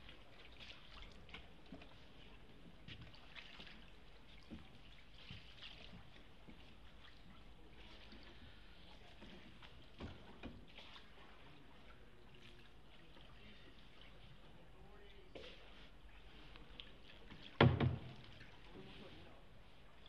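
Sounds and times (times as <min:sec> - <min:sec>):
oar swishing through water: 0:00.0 - 0:20.0
soft knocks: 0:17.5 - 0:18.4.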